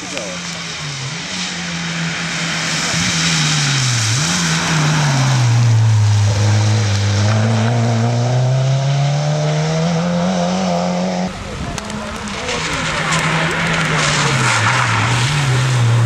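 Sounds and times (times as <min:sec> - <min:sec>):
tyre spray hissing on wet road: 0:00.0 - 0:08.0
car engine revving: 0:00.0 - 0:16.0.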